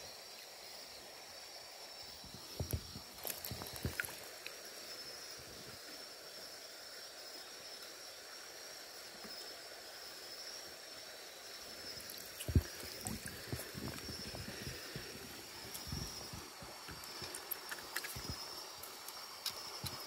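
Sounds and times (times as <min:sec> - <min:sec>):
water trickling: 0:02.3 - 0:04.6, 0:11.7 - 0:20.0
water splashing: 0:02.6 - 0:04.5, 0:12.0 - 0:20.0.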